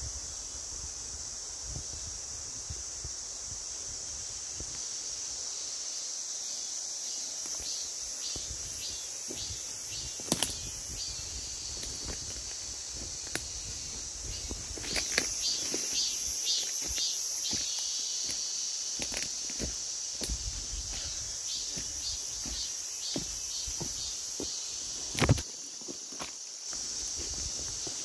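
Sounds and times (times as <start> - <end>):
insects chorus: 0.0 - 28.0
footsteps in dry leaf litter: 11.7 - 24.0.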